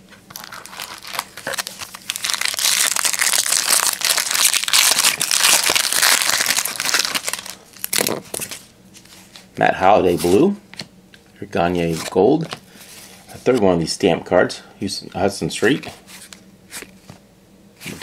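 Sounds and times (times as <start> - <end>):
foil wrapper crinkling and tearing: 0.2 - 8.6.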